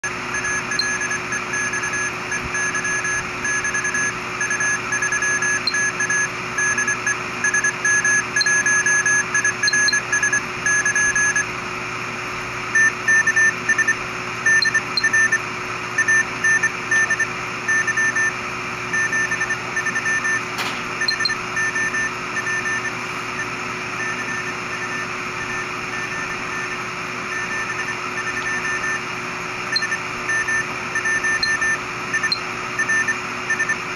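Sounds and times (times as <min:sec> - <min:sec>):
morse code beeping tone: 0:00.3 - 0:11.5, 0:12.8 - 0:15.4, 0:16.0 - 0:33.8.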